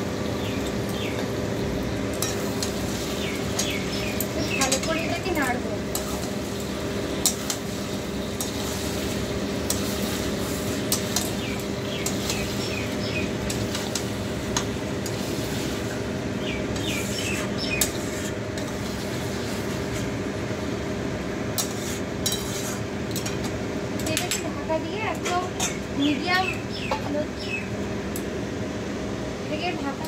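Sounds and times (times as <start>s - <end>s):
steady low hum: 0.0s - 30.0s
metal spatula scraping a pan: 21.6s - 22.9s.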